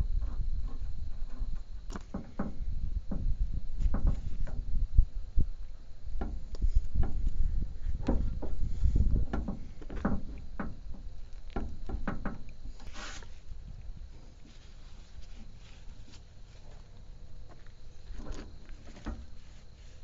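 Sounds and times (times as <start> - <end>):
short rustle: 12.6 - 20.0.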